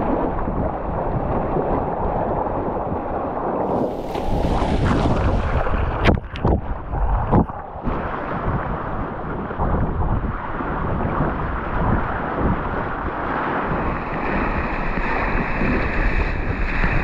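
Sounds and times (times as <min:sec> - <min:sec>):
choppy sea splashing on hull: 0:00.0 - 0:17.0
wave surging with fizzing splash: 0:00.0 - 0:17.0
wind buffeting microphone: 0:00.0 - 0:17.0.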